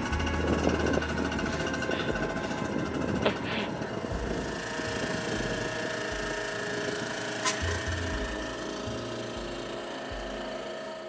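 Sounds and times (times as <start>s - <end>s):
small engine rattling: 0.0s - 11.0s.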